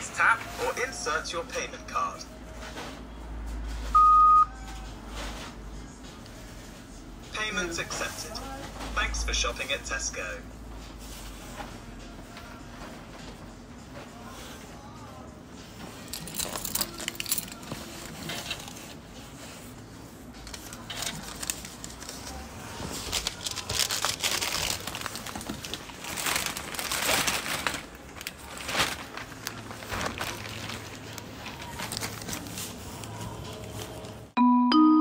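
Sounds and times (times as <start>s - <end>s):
plastic bags rustling: 15.6s - 34.4s.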